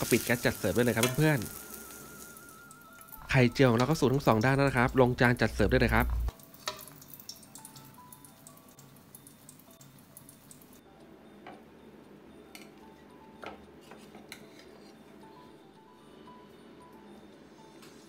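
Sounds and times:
faint background music: 0.0 - 18.0
omelette frying in oil: 6.3 - 10.8.

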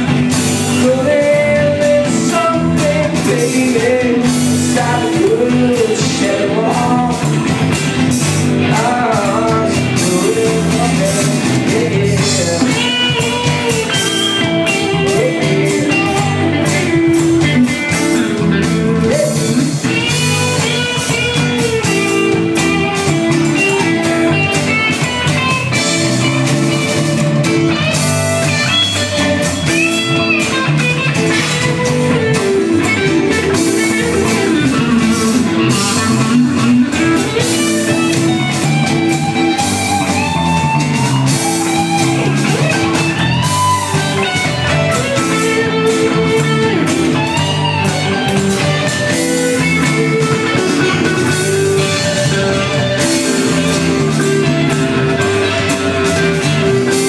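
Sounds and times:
bass guitar: 0.0 - 57.0
drum kit: 0.0 - 57.0
electric guitar lead: 0.0 - 57.0
person singing: 0.4 - 7.5, 8.6 - 20.8.

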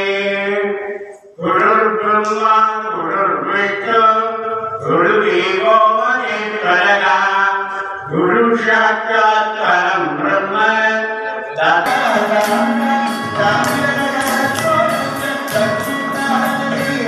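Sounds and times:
man chanting into microphone: 0.0 - 17.0
dance music with metallic beat: 11.9 - 17.0.

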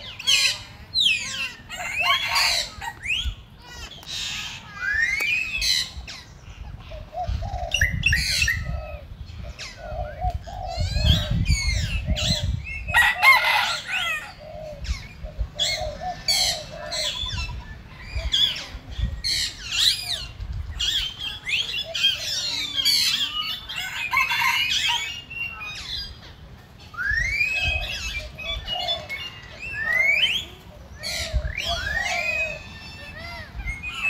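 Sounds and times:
birds chirping: 0.0 - 34.0
rising bird whistle: 27.0 - 28.2.

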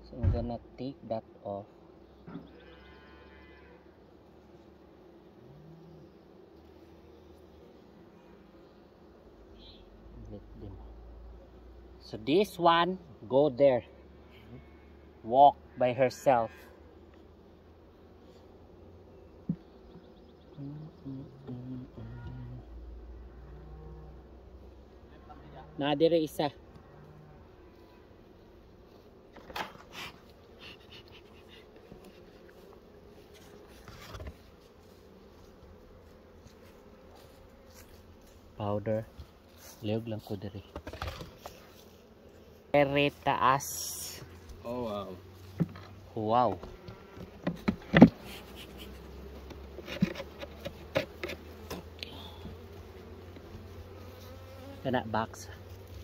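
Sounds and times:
honeybees buzzing: 0.0 - 56.0
knocks and scrapes: 33.4 - 34.5, 40.6 - 41.7, 45.4 - 48.4, 49.4 - 51.8.

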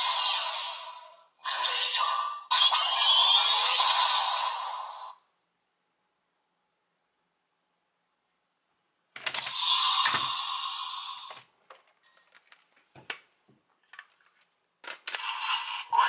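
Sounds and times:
electronic toy sound: 0.0 - 5.1, 9.3 - 11.4
plastic toys clicking and knocking: 9.2 - 10.3, 13.8 - 15.4.

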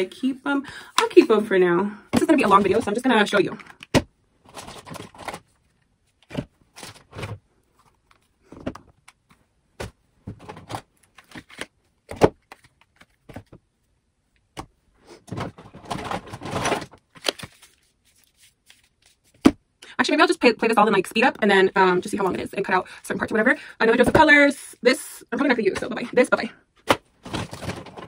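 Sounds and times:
rustling and rattling: 15.2 - 17.7, 27.2 - 28.0.

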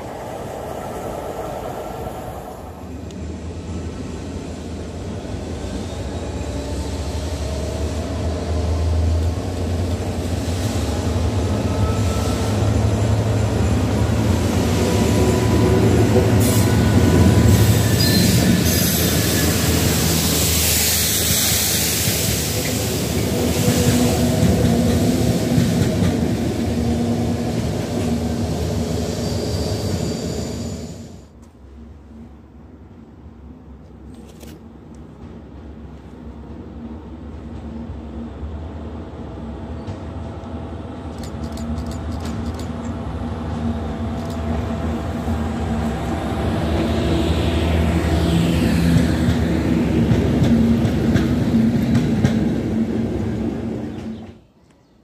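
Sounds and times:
train engine drone: 0.0 - 54.6
train wheels rattling on rails: 4.2 - 30.8, 39.8 - 54.4
high wheel squeals: 16.4 - 21.6.

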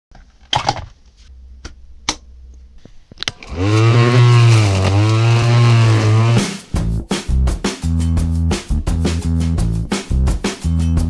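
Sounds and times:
string trimmer motor hum: 3.4 - 6.4.

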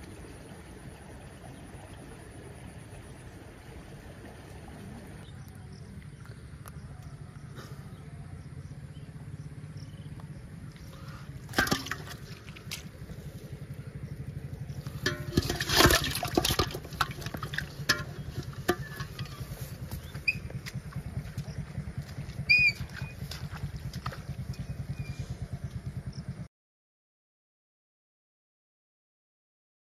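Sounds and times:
low pulsing rumble: 0.0 - 26.5
fish dropped into plastic bowl: 11.5 - 12.8, 15.0 - 19.3.

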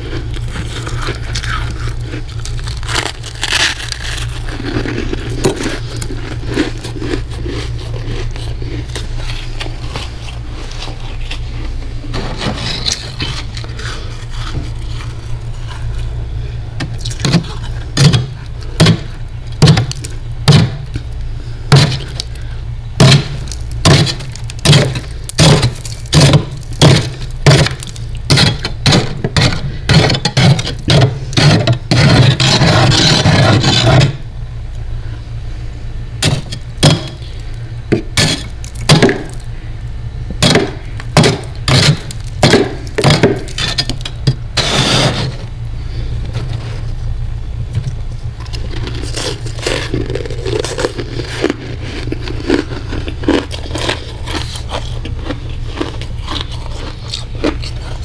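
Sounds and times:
metal spoon scraping frost: 0.0 - 16.2, 21.8 - 34.2, 38.2 - 39.4, 40.4 - 46.9
freezer low hum: 0.0 - 58.0.

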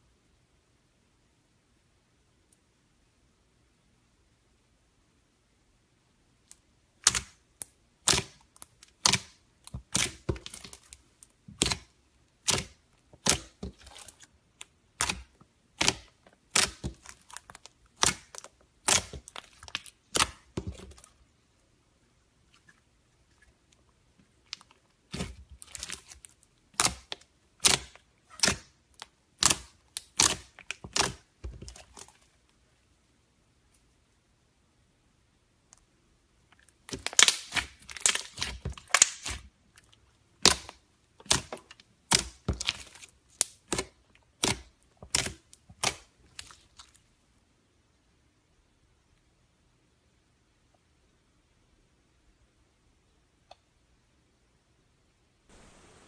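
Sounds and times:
slime clicking and popping: 6.5 - 11.0, 11.6 - 21.0, 24.5 - 32.0, 36.8 - 39.5, 40.4 - 46.6.

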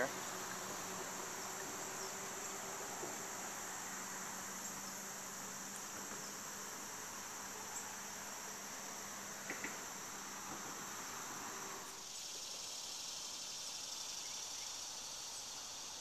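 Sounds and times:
insects trilling: 0.0 - 16.0.

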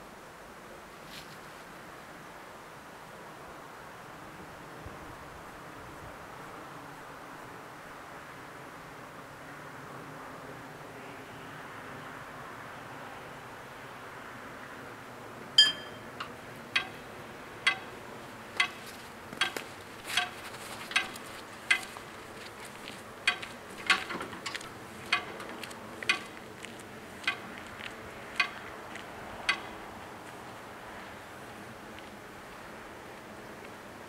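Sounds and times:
level crossing bell strokes: 15.6 - 16.1.

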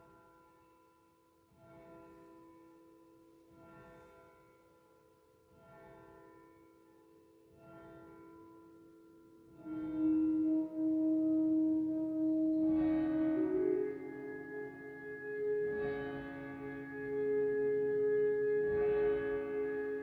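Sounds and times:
flute playing slow notes: 9.6 - 20.0.

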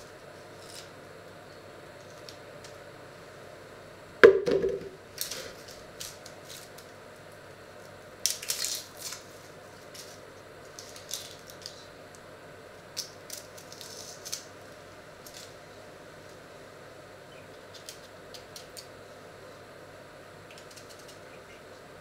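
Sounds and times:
onion knocking into plastic jug: 4.2 - 5.0
knife peeling dry onion skin: 8.2 - 11.8, 12.9 - 14.5, 20.5 - 21.2.

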